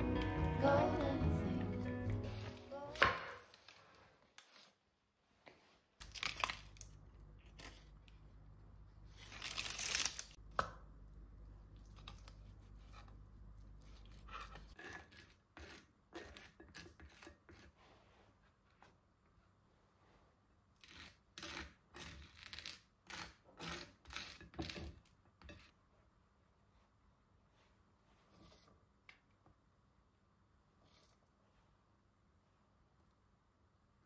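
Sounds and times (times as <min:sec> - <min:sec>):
parchment crinkling and tearing: 0:06.0 - 0:07.0, 0:09.1 - 0:10.4.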